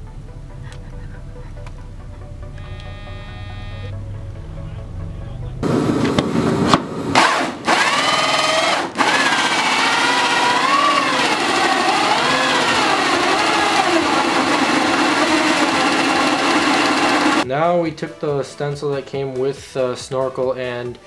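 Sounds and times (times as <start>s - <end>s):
electric drill motor whine: 2.6s - 3.9s, 5.6s - 17.4s.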